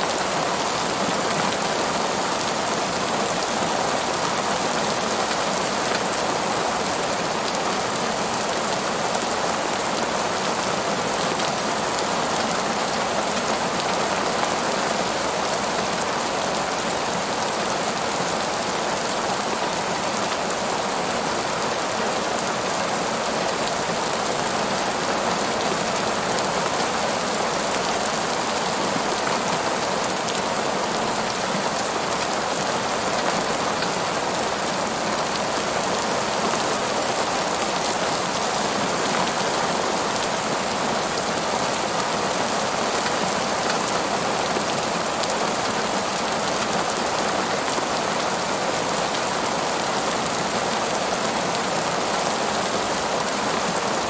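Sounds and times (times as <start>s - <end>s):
rain on tree leaves: 0.0s - 54.0s.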